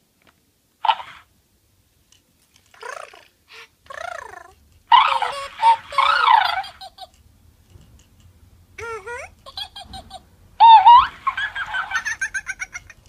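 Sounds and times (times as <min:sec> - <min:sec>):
toy chattering in electronic voice: 0:02.7 - 0:07.2, 0:08.8 - 0:13.0.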